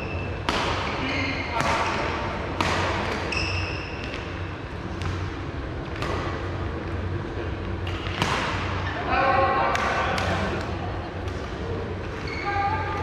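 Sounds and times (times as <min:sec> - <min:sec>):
steady low hum: 0:00.0 - 0:13.0
shoe squeak: 0:03.2 - 0:04.1, 0:12.2 - 0:12.9
rackets striking shuttlecock: 0:05.8 - 0:06.5, 0:07.7 - 0:08.8.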